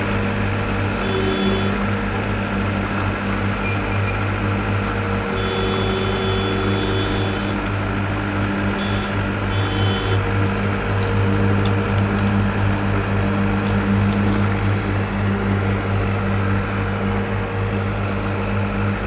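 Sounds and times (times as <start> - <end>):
diesel engine humming: 0.0 - 19.0
faint high whine: 8.7 - 10.2.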